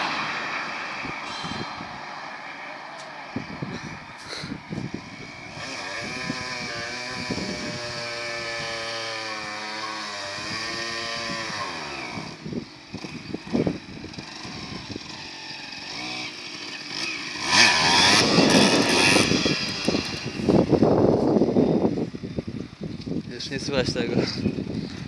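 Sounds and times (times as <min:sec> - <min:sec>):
dirt bike engine running: 0:04.7 - 0:23.3.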